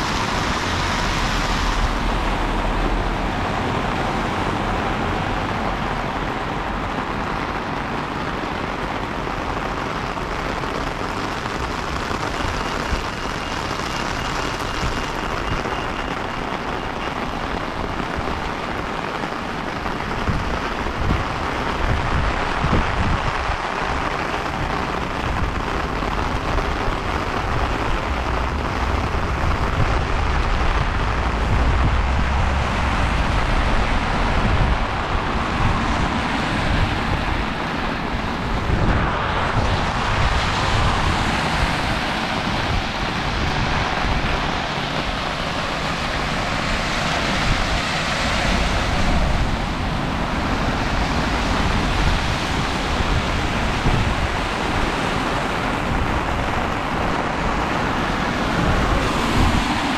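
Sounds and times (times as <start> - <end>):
heavy rain on street: 0.0 - 59.9
deep low rumble: 25.2 - 36.1.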